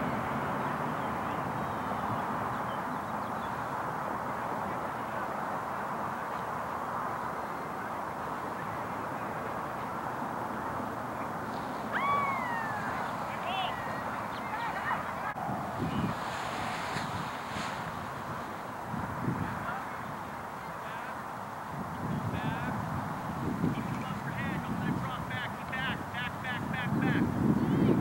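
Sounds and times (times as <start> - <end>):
steady wind noise: 0.0 - 28.0
call rising and falling in pitch: 11.9 - 16.1.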